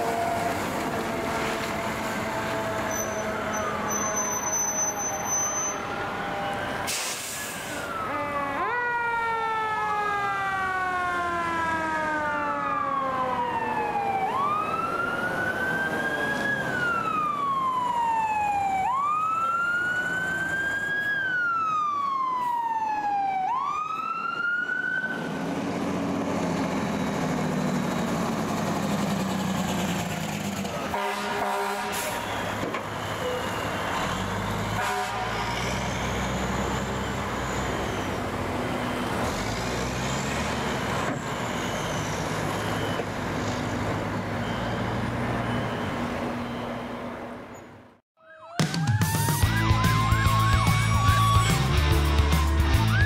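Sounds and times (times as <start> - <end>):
second siren: 0.0 - 25.4, 48.2 - 51.8
fire siren wailing: 0.0 - 25.8, 30.7 - 47.0, 48.2 - 53.0.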